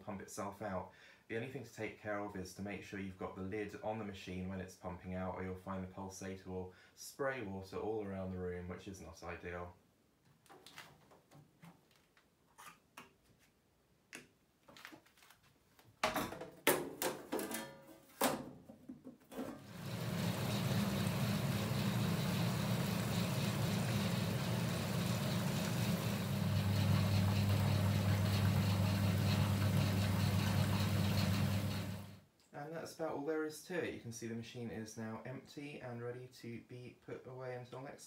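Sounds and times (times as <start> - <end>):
washing machine pump humming: 19.5 - 32.2.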